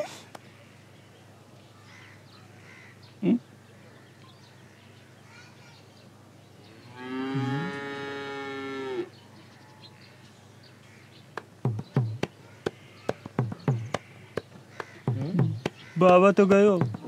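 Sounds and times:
cow mooing: 6.8 - 9.1
sharp knocks: 11.4 - 17.0.

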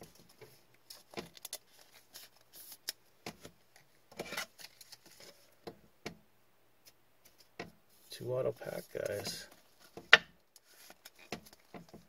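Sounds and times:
card and plastic scraping: 0.9 - 5.4.

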